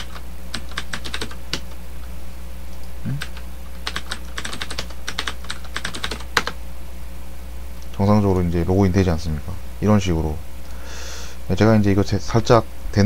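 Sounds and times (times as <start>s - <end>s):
keyboard typing: 0.0s - 1.8s, 3.1s - 6.6s
steady low hum: 0.0s - 13.0s.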